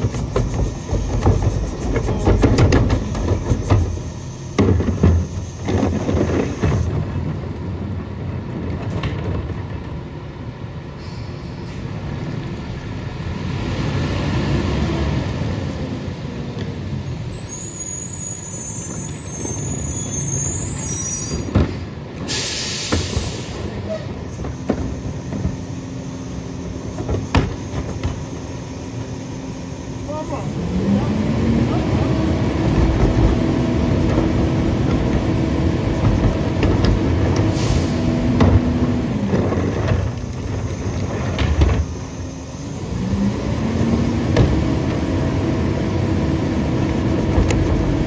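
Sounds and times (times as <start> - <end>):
plastic carts clanking: 0.0 - 4.0
air brake hiss: 11.0 - 11.9, 17.4 - 24.1, 37.4 - 38.2
high squeaks: 17.4 - 21.5
truck diesel engine running: 23.0 - 48.0.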